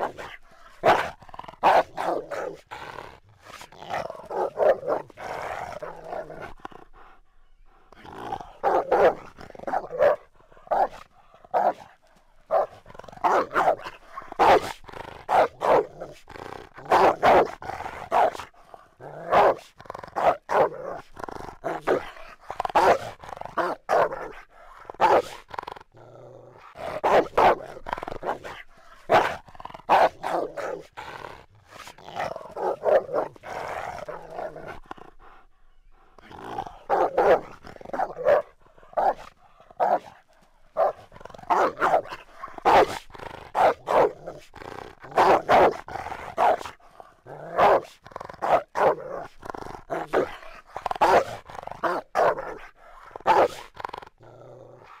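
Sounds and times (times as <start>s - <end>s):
dog barking: 0.0s - 2.6s, 4.3s - 5.1s, 8.6s - 11.8s, 12.5s - 15.9s, 16.9s - 18.4s, 19.3s - 20.8s, 22.8s - 24.4s, 25.0s - 25.4s, 26.9s - 27.6s, 28.2s - 30.8s, 32.2s - 33.4s, 36.9s - 40.1s, 40.8s - 43.0s, 43.6s - 44.2s, 45.2s - 46.7s, 47.5s - 49.0s, 51.0s - 52.6s, 53.2s - 53.6s
dog growling: 0.0s - 55.0s.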